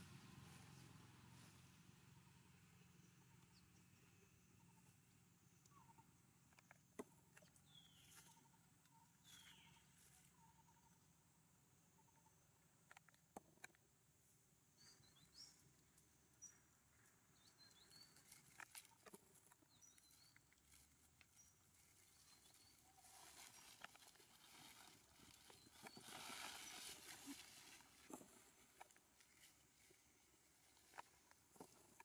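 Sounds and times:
rustling of dry leaf litter: 0:20.0 - 0:32.0.

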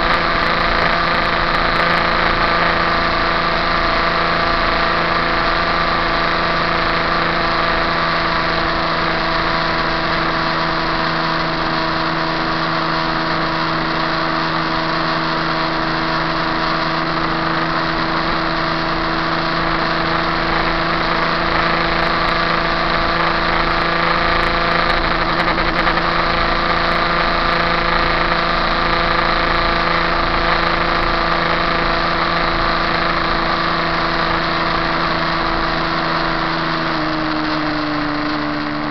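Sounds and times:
motorcycle engine at high revs: 0:00.0 - 0:38.9
wind and road noise: 0:00.0 - 0:38.9.

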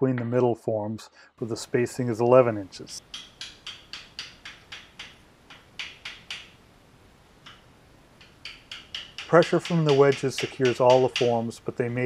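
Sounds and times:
wooden wedges being tapped: 0:03.0 - 0:06.6, 0:07.4 - 0:11.7.

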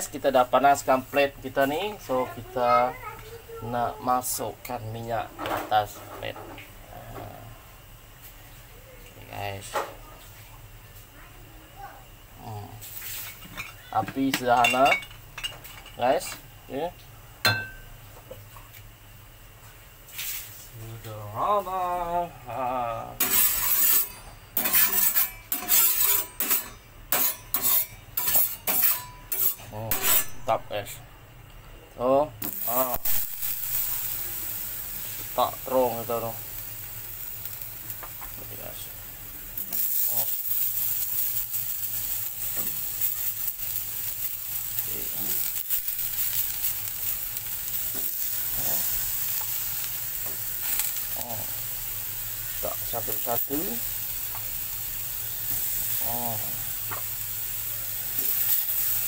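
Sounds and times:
eggplants sizzling in oil: 0:00.0 - 0:59.0
metal utensil scraping on hot plate: 0:12.8 - 0:16.3, 0:23.1 - 0:31.0, 0:39.6 - 0:51.7, 0:52.5 - 0:59.0.

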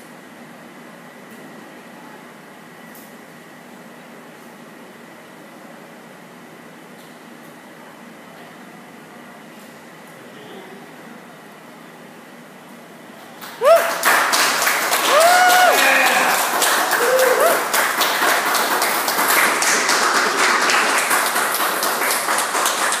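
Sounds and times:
whoops and cheers: 0:13.4 - 0:17.8
audience applause: 0:13.4 - 0:23.0.

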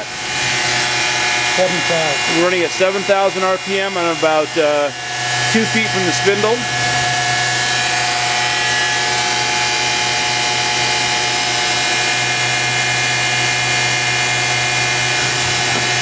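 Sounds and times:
machine spindle whining: 0:00.0 - 0:16.0.

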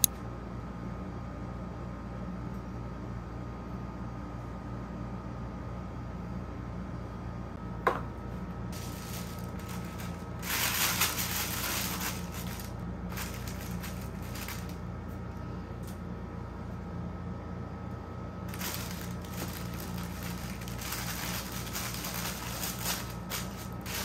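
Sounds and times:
tissue paper crinkling: 0:08.7 - 0:14.8, 0:18.5 - 0:24.0.

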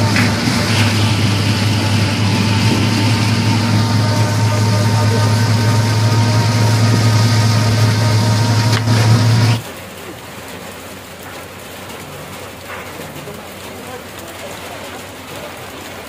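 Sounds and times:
electric rickshaw motor hum: 0:00.0 - 0:09.7
rain patter: 0:00.0 - 0:16.0.

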